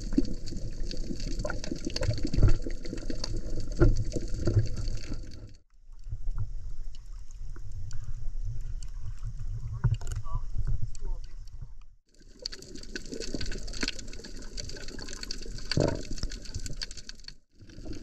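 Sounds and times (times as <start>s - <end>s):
water washing around rocks: 0.0s - 5.5s, 12.1s - 18.0s
muffled underwater movement: 0.0s - 18.0s
underwater crackling clicks: 9.8s - 11.6s, 12.2s - 18.0s.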